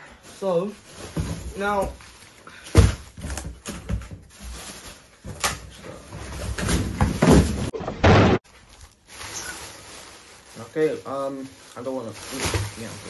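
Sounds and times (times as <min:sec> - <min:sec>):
plastic bag rustling: 0:00.1 - 0:07.7, 0:08.4 - 0:13.0
cardboard box knocks and thumps: 0:02.7 - 0:04.3, 0:06.1 - 0:07.8.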